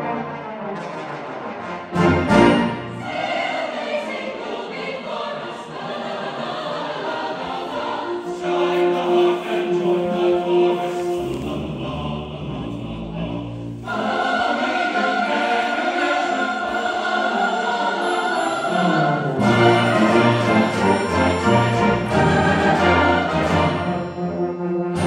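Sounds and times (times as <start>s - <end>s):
low brass notes: 0.0s - 3.3s
brass band playing: 0.0s - 3.5s, 18.0s - 25.0s
choir singing: 1.8s - 25.0s.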